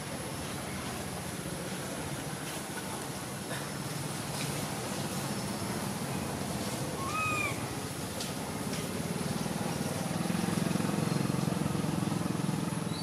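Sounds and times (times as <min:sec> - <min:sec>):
baby macaque call: 0:07.0 - 0:07.7.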